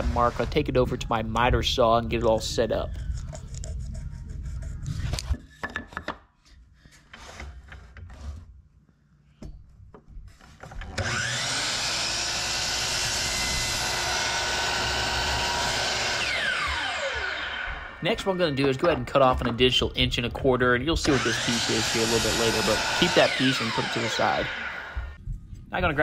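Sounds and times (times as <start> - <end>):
miter saw cutting wood: 0.0 - 0.8, 10.8 - 19.0, 21.0 - 25.2.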